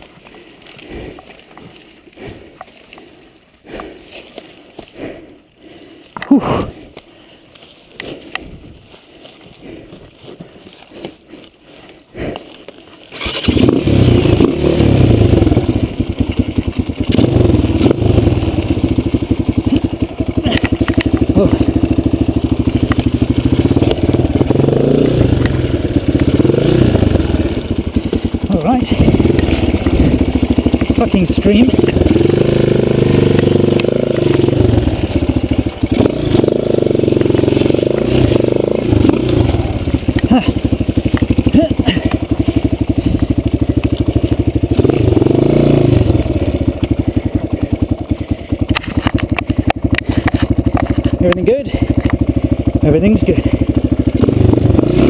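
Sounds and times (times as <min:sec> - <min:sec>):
person breathing hard: 0:00.0 - 0:13.0
motorcycle engine revving: 0:12.2 - 0:55.0
rustling in wet brush: 0:25.4 - 0:45.3.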